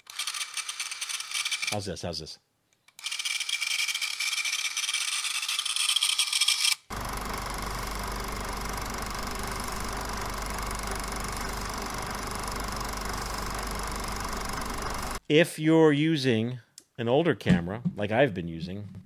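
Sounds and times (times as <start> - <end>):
movie camera motor whirring: 0.0 - 1.8, 3.0 - 15.2
machine hum: 6.9 - 15.2.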